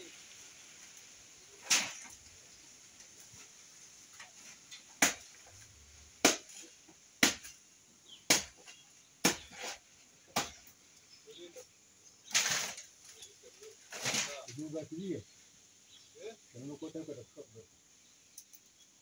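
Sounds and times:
chopping into plant stem: 8.3s - 8.6s.

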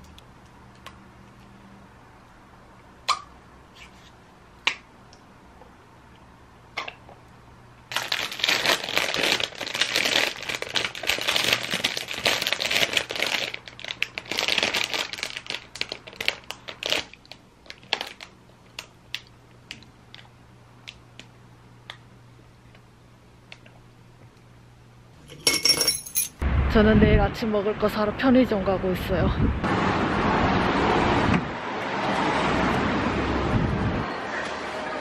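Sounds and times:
plastic snack packaging crinkling: 7.9s - 19.3s.

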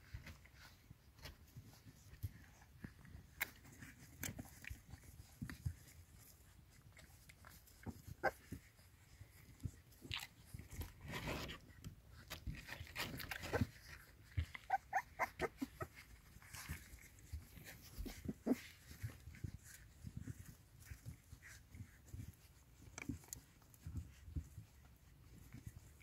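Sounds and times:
puppies suckling: 0.0s - 26.0s
puppies squeaking: 14.4s - 16.9s.

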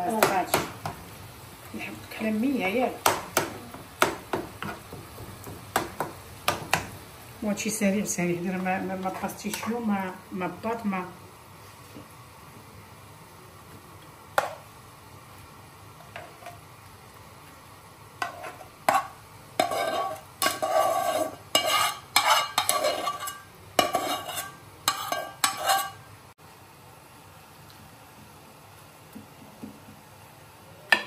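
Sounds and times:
faint steady hiss: 0.0s - 31.0s
utensil scraping in pan: 18.2s - 26.1s.

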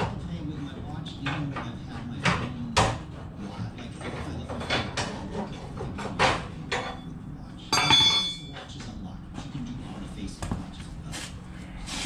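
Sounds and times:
hand tools knocking on steel: 7.7s - 8.5s
metallic clang: 7.8s - 8.5s.

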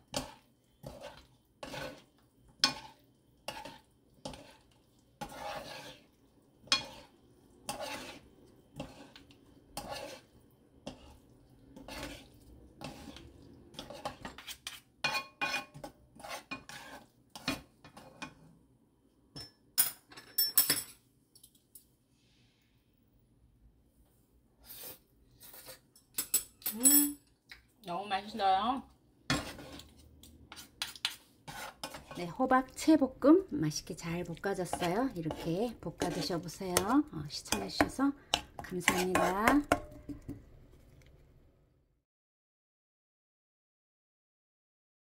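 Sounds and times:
wooden spatulas scraping a pan: 0.0s - 18.5s, 29.3s - 41.0s.

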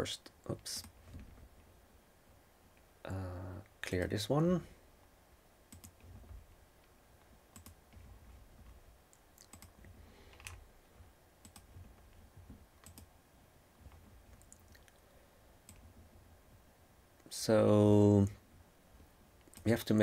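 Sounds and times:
low room hum: 0.0s - 20.0s
computer mouse clicks: 5.7s - 6.2s, 7.5s - 10.6s, 11.4s - 12.2s, 12.8s - 13.1s, 15.6s - 15.9s.

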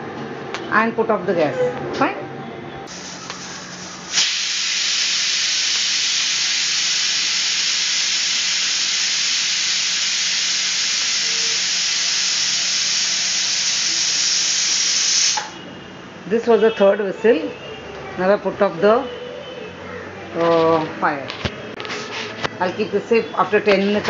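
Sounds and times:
pressure cooker whistle hissing: 2.9s - 15.7s.

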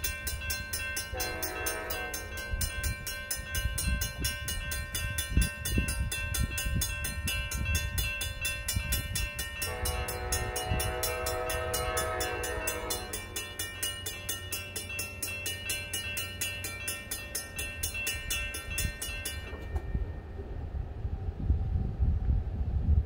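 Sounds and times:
railroad crossing bells ringing: 0.0s - 21.2s
train horn chord: 1.1s - 2.6s, 9.6s - 13.6s.

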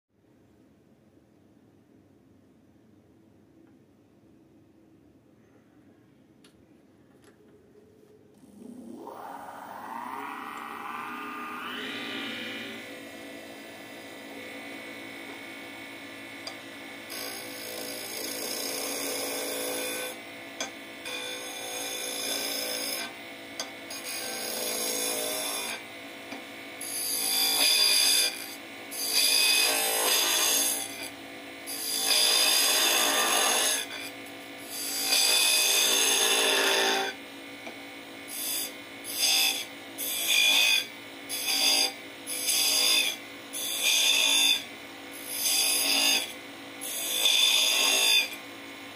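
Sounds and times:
wood lathe humming: 8.4s - 20.2s, 23.9s - 31.1s, 41.4s - 48.7s.

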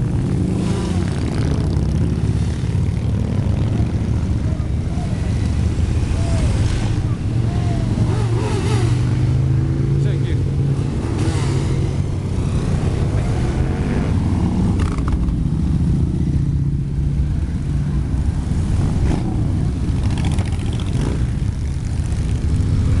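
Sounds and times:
motorcycles riding past: 0.0s - 23.0s.

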